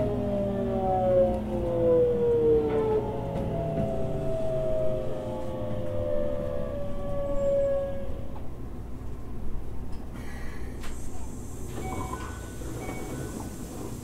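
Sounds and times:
train motor whine: 0.0 - 8.5
train running gear rumble: 0.0 - 14.0.

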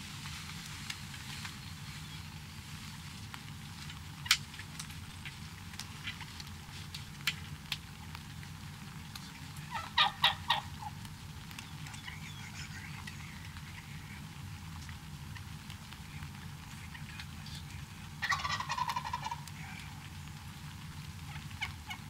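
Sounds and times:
steady low rumble: 0.0 - 22.0
light ticks: 2.9 - 9.8, 11.0 - 18.2
turkey gobbling: 4.2 - 6.7, 9.1 - 22.0.

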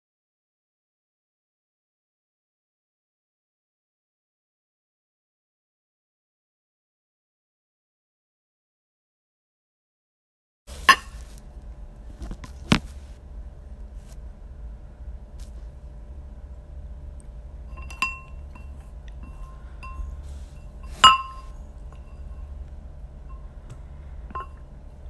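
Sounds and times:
utensil clinking against bowl: 17.7 - 22.6, 24.3 - 24.7.

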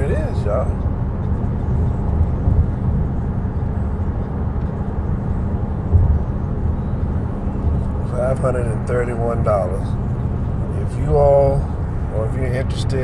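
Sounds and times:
car road and engine rumble: 0.0 - 13.0.

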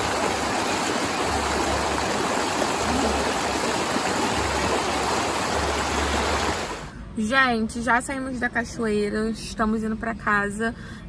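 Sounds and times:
waterfall rushing over rocks: 0.0 - 6.9.

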